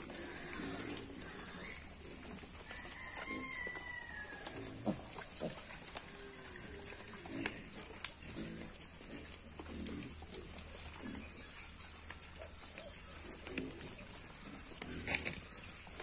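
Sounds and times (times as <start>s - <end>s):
piglets grunting: 0.0s - 1.9s.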